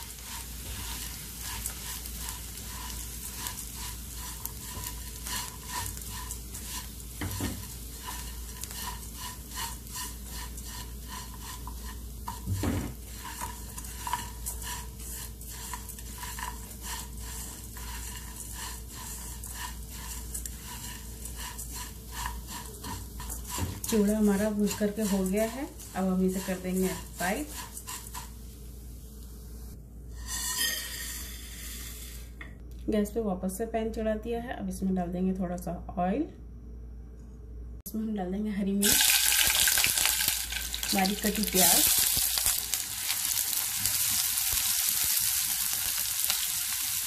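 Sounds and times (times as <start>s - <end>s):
spatula scraping a pan: 0.0s - 28.7s, 30.1s - 32.2s, 38.9s - 47.0s
dry flakes rustling: 0.0s - 28.9s
light sizzle: 0.0s - 33.2s, 38.7s - 47.0s.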